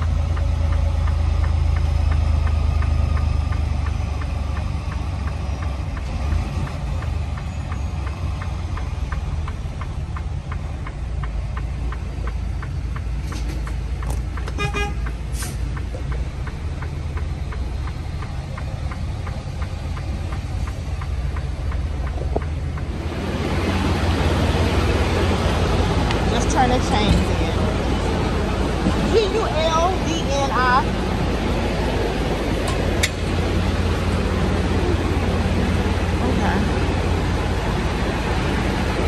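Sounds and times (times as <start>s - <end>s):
fast even ticking: 0.0s - 23.4s
truck engine rumbling: 0.0s - 39.0s.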